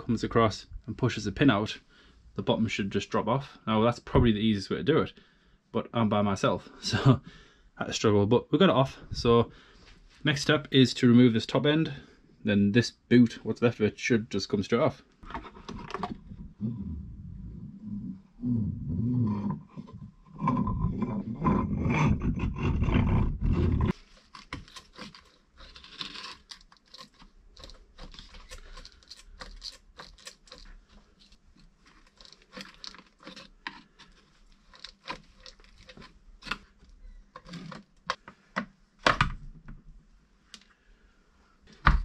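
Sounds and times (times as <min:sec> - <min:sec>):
loud low rumbling: 0:16.4 - 0:19.4.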